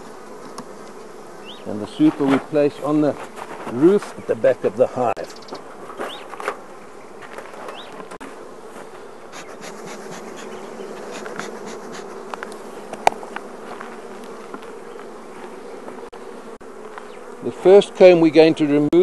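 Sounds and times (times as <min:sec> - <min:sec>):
honeybee colony humming: 0:00.0 - 0:19.0.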